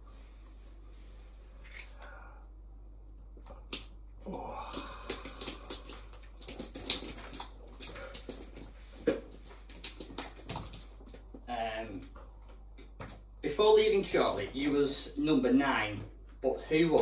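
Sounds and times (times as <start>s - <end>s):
small splats and drips: 3.0s - 17.0s
man gasping: 4.2s - 6.0s.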